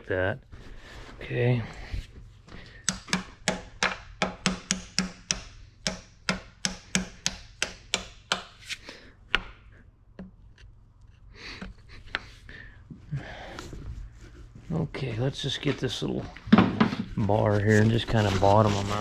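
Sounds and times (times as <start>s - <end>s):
hammer tapping metal part: 2.8s - 8.5s.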